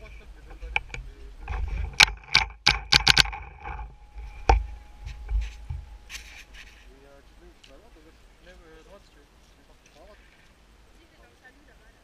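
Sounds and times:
sharp clicks and knocks: 0:00.6 - 0:06.8.

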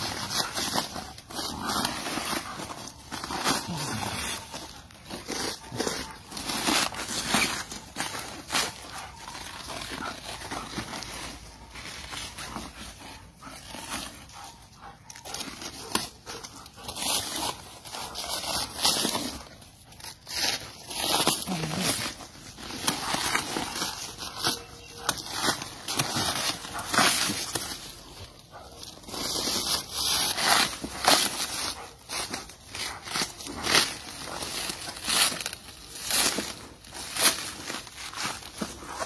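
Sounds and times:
dry leaves rustling and crackling: 0:00.0 - 0:39.0.

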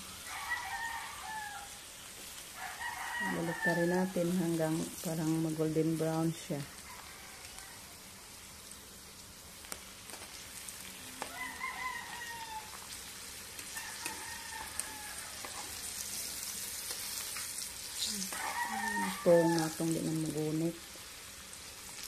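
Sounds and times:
rooster crowing: 0:00.0 - 0:01.9, 0:02.5 - 0:04.3, 0:06.7 - 0:08.1, 0:11.1 - 0:13.0, 0:13.7 - 0:16.4, 0:18.2 - 0:20.1
leaves deep-frying in oil: 0:00.0 - 0:22.0.

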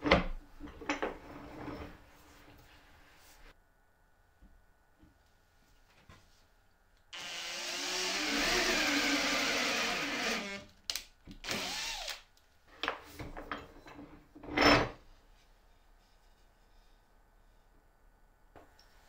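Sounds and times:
electric drill boring into wood: 0:07.2 - 0:10.7, 0:11.4 - 0:12.2.

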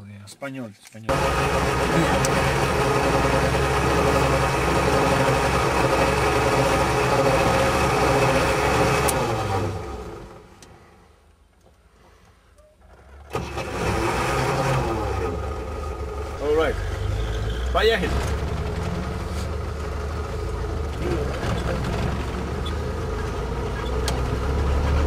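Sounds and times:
vehicle engine running: 0:01.1 - 0:10.7, 0:12.9 - 0:25.0.

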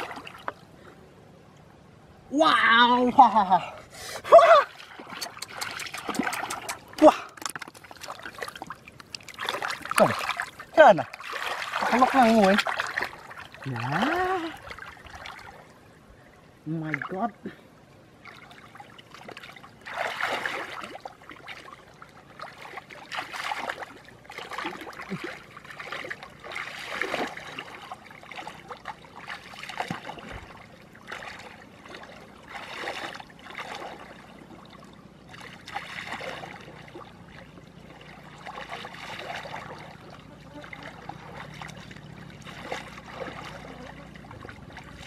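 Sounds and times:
muddy water sloshing and splashing: 0:00.0 - 0:45.0.

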